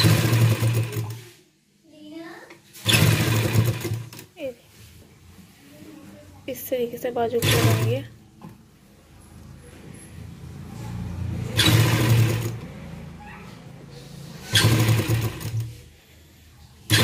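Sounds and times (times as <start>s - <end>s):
sewing machine stitching: 0.0s - 1.4s, 2.7s - 4.3s, 7.3s - 8.1s, 10.9s - 13.0s, 14.2s - 15.8s.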